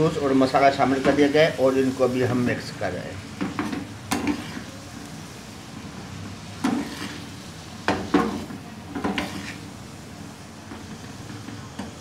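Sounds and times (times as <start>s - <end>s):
chicken sizzling in oil: 0.0s - 12.0s
spatula knocking and scraping pan: 3.4s - 4.6s, 6.6s - 7.2s, 7.8s - 9.7s.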